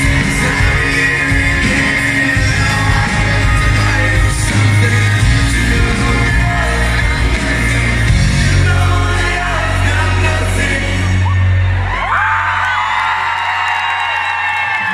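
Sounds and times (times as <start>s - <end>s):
person singing: 0.0s - 11.6s
acoustic guitar: 0.0s - 11.7s
bass: 0.0s - 14.9s
keyboards: 0.0s - 14.9s
live pop-rock band: 0.0s - 14.9s.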